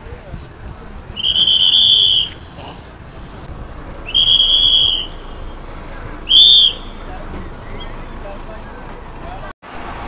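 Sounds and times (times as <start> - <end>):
low street noise: 0.0 - 10.0
bus conductor's whistle: 1.2 - 2.4, 4.1 - 5.5, 6.3 - 7.1.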